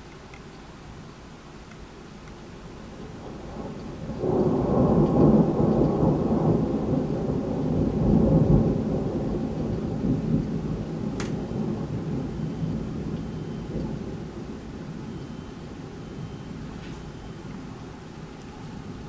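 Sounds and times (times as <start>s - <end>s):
rolling thunder: 3.0s - 17.5s.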